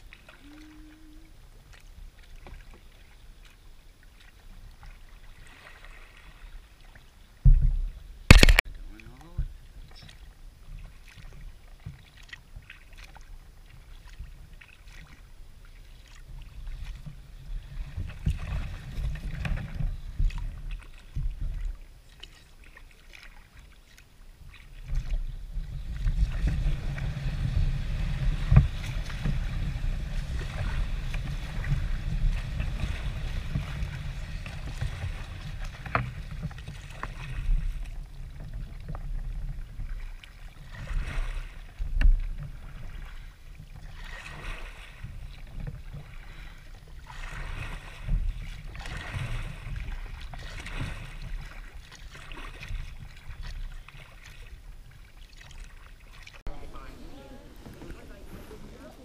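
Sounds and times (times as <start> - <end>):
paddle strokes and splashes: 0.0 - 59.0
water lapping at hull: 0.0 - 59.0
low rumble: 56.5 - 59.0.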